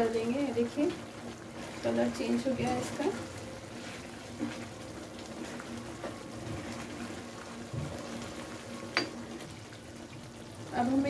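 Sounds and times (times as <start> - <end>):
food simmering and bubbling: 0.0 - 11.0
spatula stirring in a pan: 0.2 - 10.2.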